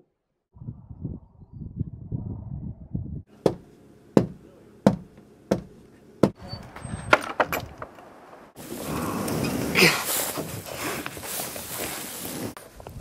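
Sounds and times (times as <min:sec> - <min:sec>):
sharp knocks: 0:03.4 - 0:06.4
wooden gate latch rattling: 0:06.8 - 0:08.1.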